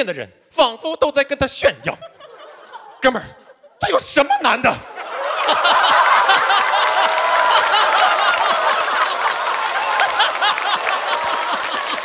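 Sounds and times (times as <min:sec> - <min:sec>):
audience laughing: 0:01.9 - 0:12.0
scattered clapping: 0:05.2 - 0:12.0.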